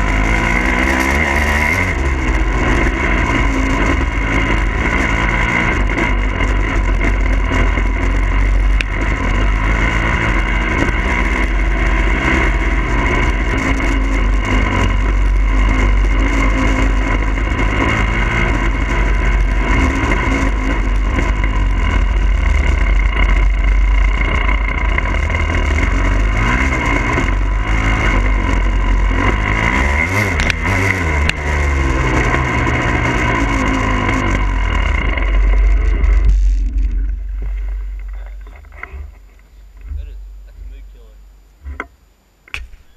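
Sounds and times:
motorcycle engine revving: 0.0 - 42.9.

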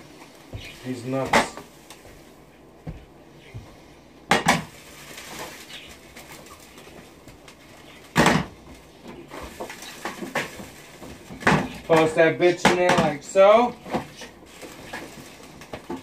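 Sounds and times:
wooden spoon stirring in pan: 0.0 - 4.0, 4.8 - 12.2
pots and pans clattering: 8.0 - 13.2.

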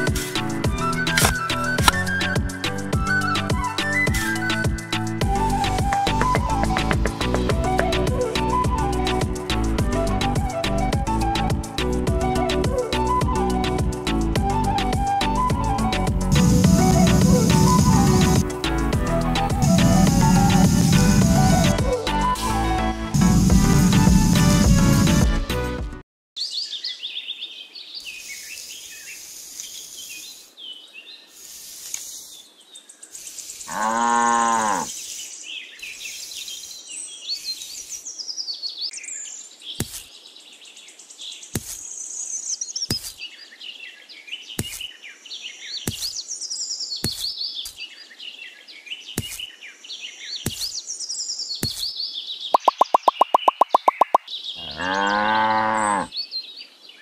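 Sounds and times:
music track: 0.0 - 26.0
cow mooing: 33.7 - 34.9, 54.6 - 56.1
birds chirping: 46.8 - 56.8
sharp clicks: 52.6 - 54.2.

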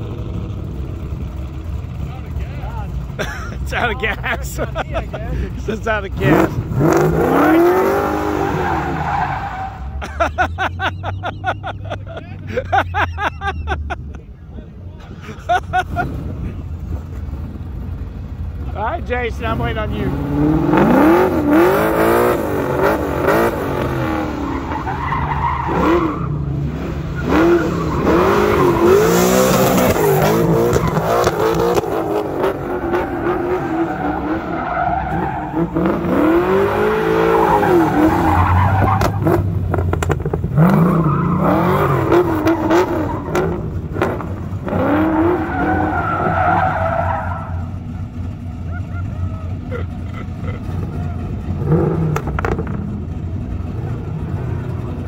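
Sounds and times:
car engine revving: 0.0 - 11.9, 15.7 - 55.0
tyres squealing: 7.4 - 10.0, 32.5 - 39.4, 44.8 - 47.9.

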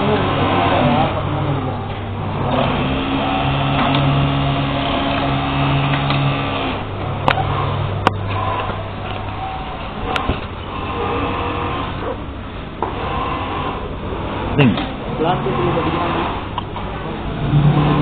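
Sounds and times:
sewing machine running: 0.0 - 12.2, 12.9 - 18.0.

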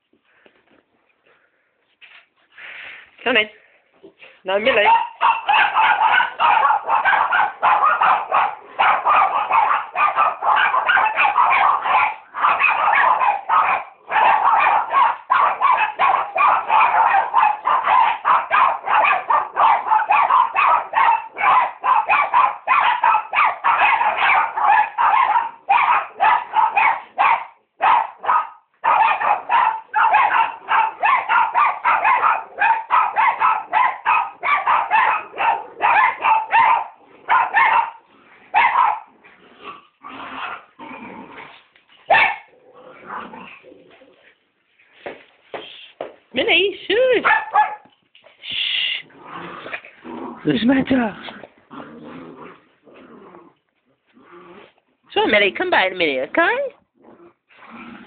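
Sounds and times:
small dogs barking rapidly: 4.6 - 39.2, 42.1 - 43.6, 46.5 - 47.9.

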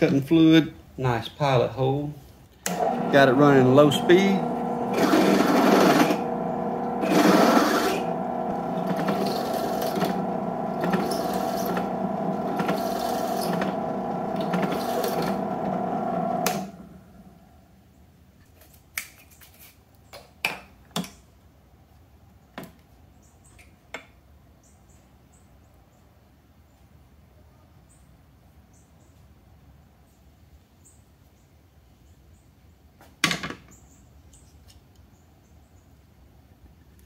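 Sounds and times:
drill press drilling metal: 2.7 - 17.2.

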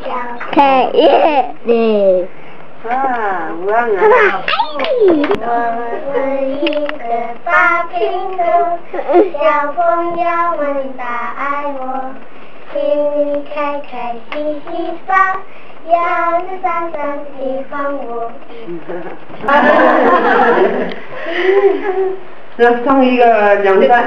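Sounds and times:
young girls singing together: 4.7 - 18.8.

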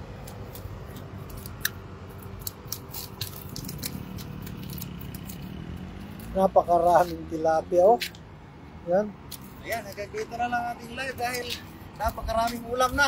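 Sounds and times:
small clicks and rustles: 0.2 - 6.4.

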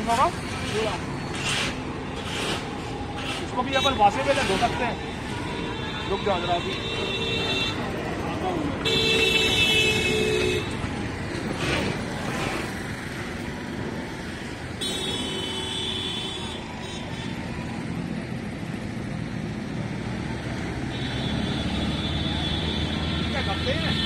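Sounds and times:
traffic rumble: 0.0 - 24.0
vehicle horn: 5.5 - 7.9, 8.8 - 10.7, 14.8 - 17.4, 20.9 - 24.0.

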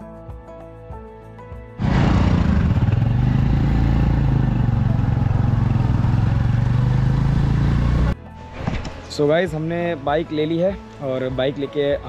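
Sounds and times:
small motorcycle engine running: 1.8 - 8.1
road and air noise: 1.8 - 8.9.

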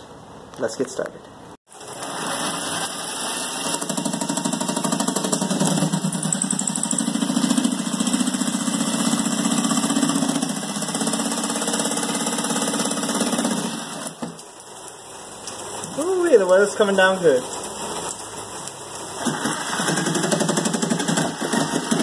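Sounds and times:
electric jigsaw cutting plywood: 1.9 - 14.4, 19.2 - 22.0.

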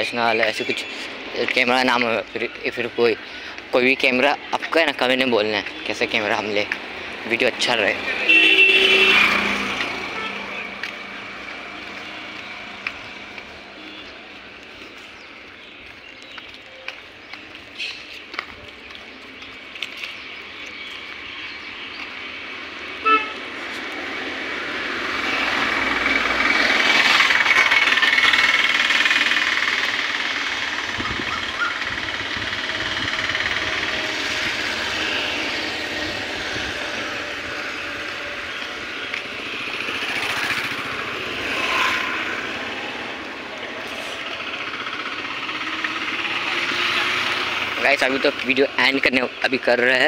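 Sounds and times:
steady traffic hum: 0.0 - 50.0
vehicle passing: 0.8 - 50.0
vehicle horn toot: 8.2 - 10.8, 23.0 - 23.4.

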